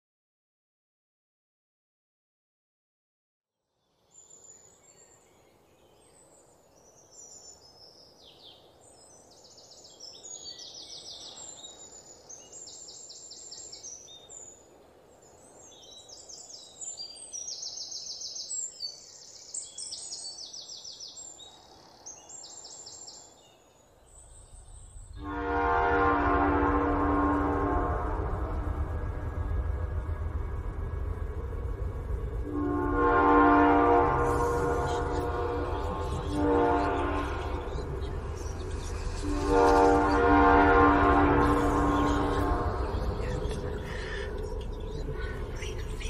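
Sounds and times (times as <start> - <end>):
songbirds trilling and chirping: 3.9 - 28.0, 32.5 - 46.0
low outdoor hum: 8.7 - 46.0
low droning music: 24.2 - 46.0.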